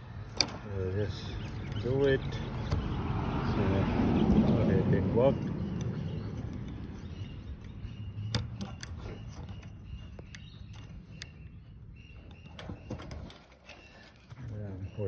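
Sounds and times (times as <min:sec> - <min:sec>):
handling clicks and taps: 0:01.4 - 0:03.0, 0:05.4 - 0:14.2.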